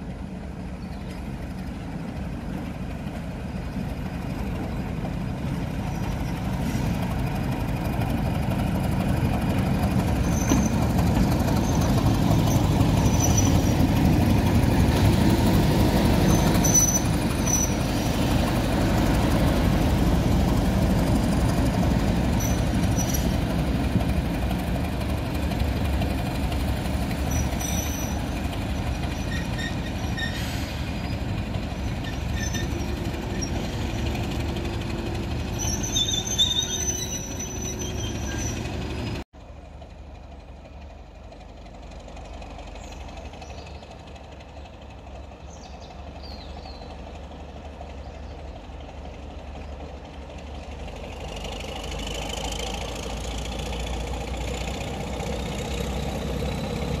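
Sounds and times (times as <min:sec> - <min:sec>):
diesel locomotive passing: 0:00.0 - 0:57.0
high wheel squeals: 0:10.0 - 0:14.1, 0:16.2 - 0:18.3, 0:21.7 - 0:23.6, 0:27.2 - 0:34.8, 0:35.4 - 0:39.2.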